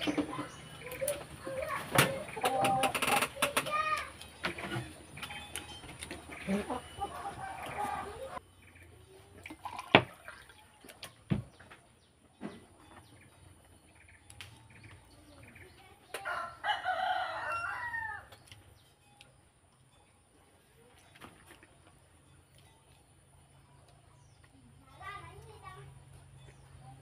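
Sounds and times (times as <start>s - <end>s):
rooster crowing: 16.2s - 18.3s.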